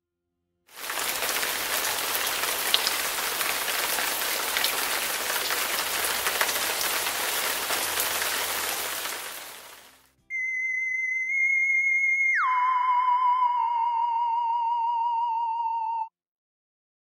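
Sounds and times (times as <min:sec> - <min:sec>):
rain falling steadily: 0:00.7 - 0:10.1.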